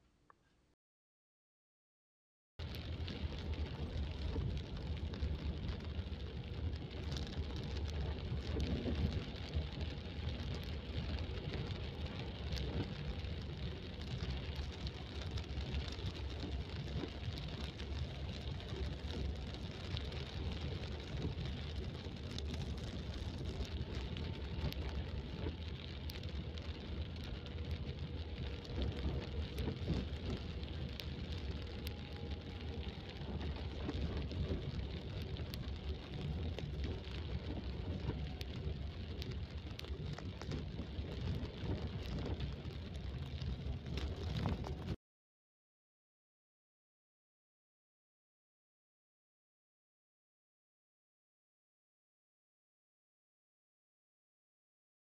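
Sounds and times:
engine and tyres rumbling: 0:02.6 - 0:45.0
rain hissing: 0:02.6 - 0:45.0
raindrops ticking on car: 0:02.6 - 0:45.0.

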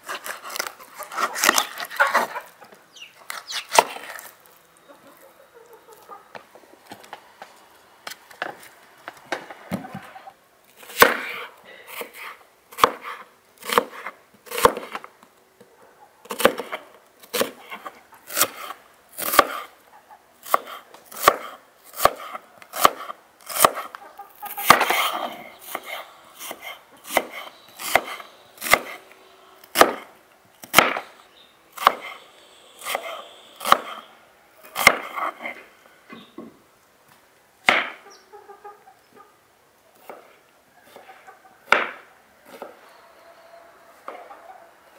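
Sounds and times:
knife slicing onions on wooden board: 0:10.8 - 0:15.0, 0:16.3 - 0:19.7, 0:20.4 - 0:23.9, 0:24.5 - 0:29.0, 0:29.6 - 0:31.0, 0:31.7 - 0:32.2, 0:32.8 - 0:34.0, 0:34.7 - 0:35.6, 0:40.0 - 0:42.8.

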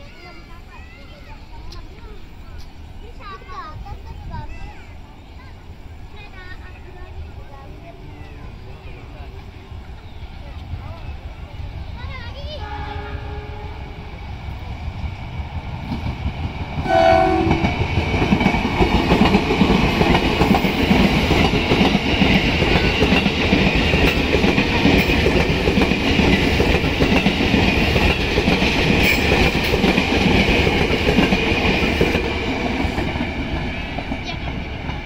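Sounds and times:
train horn blast: 0:12.6 - 0:14.0, 0:16.8 - 0:17.8
train wheels clattering on rails: 0:14.4 - 0:35.0.

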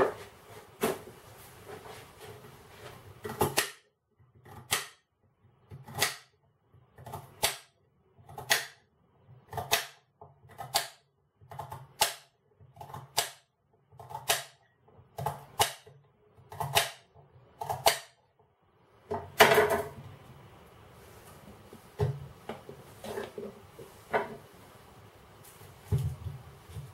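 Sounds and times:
knife chopping on glass board: 0:03.2 - 0:03.8, 0:04.5 - 0:05.0, 0:08.4 - 0:08.8, 0:09.5 - 0:10.0, 0:15.2 - 0:15.9, 0:16.5 - 0:17.0, 0:17.6 - 0:18.2.

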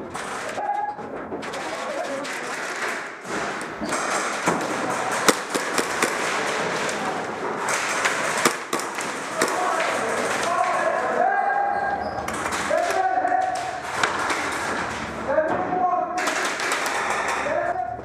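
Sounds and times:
pellets striking plywood walls: 0:00.0 - 0:11.2, 0:12.3 - 0:18.0
sharp cracks and thuds: 0:01.2 - 0:10.8, 0:16.2 - 0:17.4
airsoft gunfire: 0:01.6 - 0:10.6, 0:16.2 - 0:17.4.

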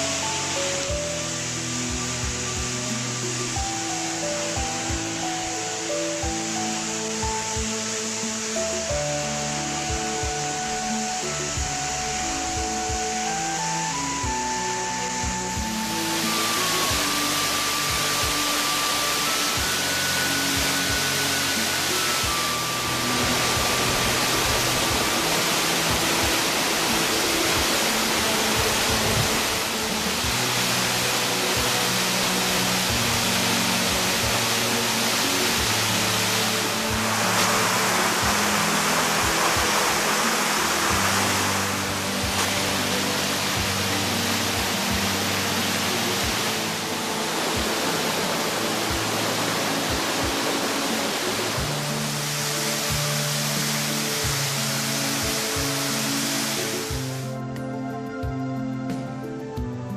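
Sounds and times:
waterfall rushing: 0:00.0 - 0:57.4
background music with low beat: 0:20.4 - 0:36.0, 0:56.9 - 0:59.9.

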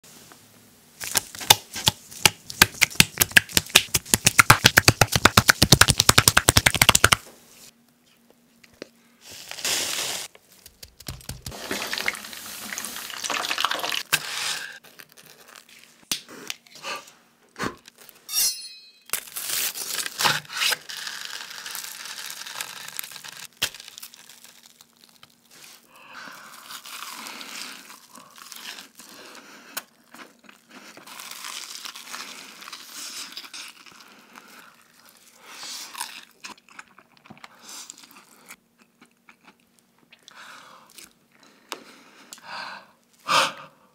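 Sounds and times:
crunching of fried crust: 0:10.5 - 0:16.0, 0:19.2 - 0:39.6.

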